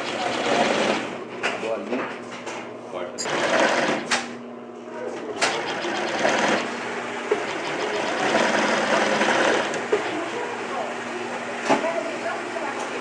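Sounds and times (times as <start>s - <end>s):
industrial sewing machine stitching: 0.0s - 1.2s, 3.2s - 4.3s, 5.3s - 10.5s.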